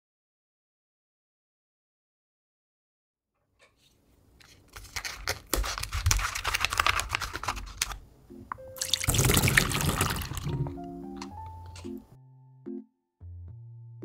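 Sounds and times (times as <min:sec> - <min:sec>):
plastic pouch crinkling: 0:04.4 - 0:08.0.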